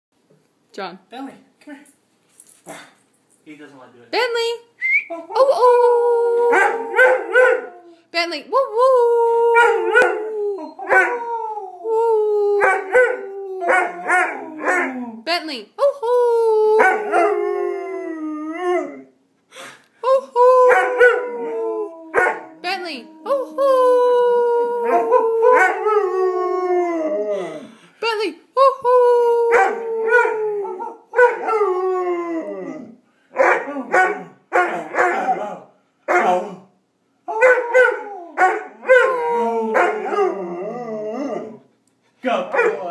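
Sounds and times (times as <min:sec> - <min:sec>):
puppy howling: 0:05.1 - 0:08.0, 0:08.7 - 0:15.2, 0:16.2 - 0:19.1, 0:20.4 - 0:27.6, 0:28.8 - 0:36.6, 0:37.3 - 0:41.6
man howling: 0:05.2 - 0:07.9, 0:08.7 - 0:15.2, 0:16.0 - 0:19.1, 0:20.2 - 0:27.7, 0:28.8 - 0:32.9, 0:37.3 - 0:41.6.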